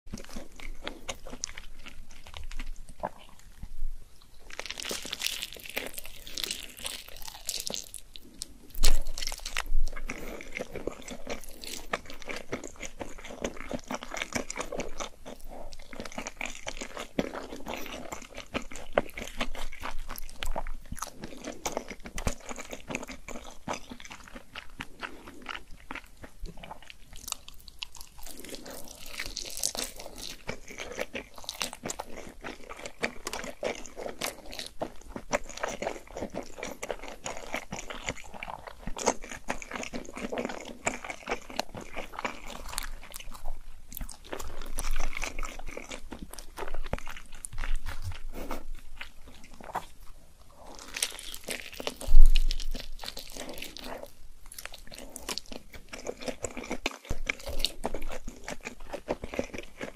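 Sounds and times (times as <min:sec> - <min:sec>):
wet chewing and biting: 0:00.1 - 0:59.9.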